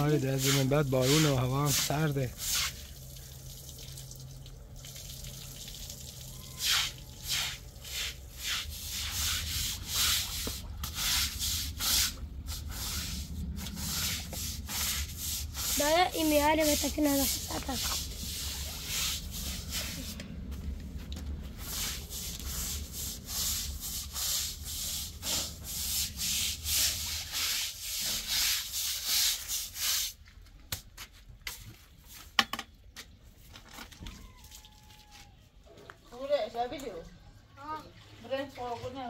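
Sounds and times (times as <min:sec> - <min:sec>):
rhythmic rubbing strokes: 0:06.6 - 0:20.2.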